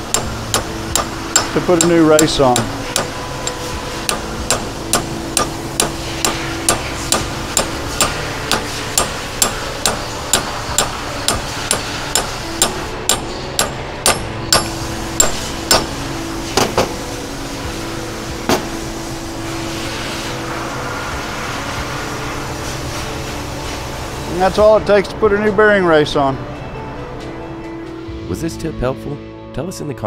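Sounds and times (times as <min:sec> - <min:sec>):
hammer tapping metal pipe: 0:00.0 - 0:16.0.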